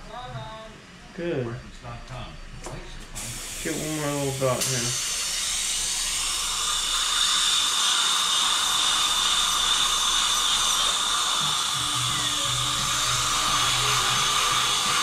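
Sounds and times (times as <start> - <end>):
dental drill whining: 3.2 - 15.0
suction tube hiss: 3.2 - 15.0.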